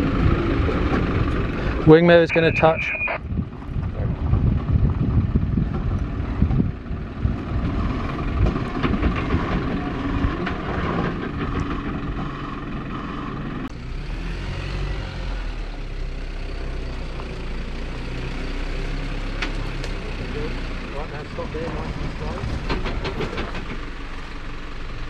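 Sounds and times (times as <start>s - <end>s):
wind buffeting microphone: 0.0s - 12.8s
truck engine running at low revs: 0.0s - 25.0s.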